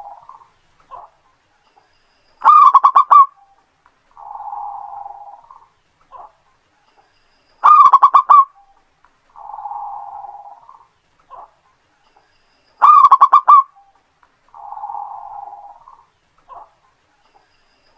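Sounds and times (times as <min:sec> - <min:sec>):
dove cooing: 0:00.0 - 0:01.2, 0:02.4 - 0:03.5, 0:04.1 - 0:06.4, 0:07.6 - 0:08.7, 0:09.3 - 0:11.6, 0:12.8 - 0:13.9, 0:14.5 - 0:16.8.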